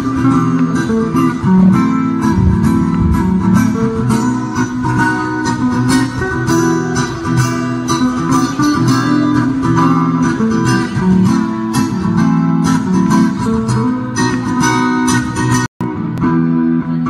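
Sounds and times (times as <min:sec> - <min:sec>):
acoustic guitar strumming: 0:00.0 - 0:17.0
electric guitar melody: 0:00.0 - 0:17.0.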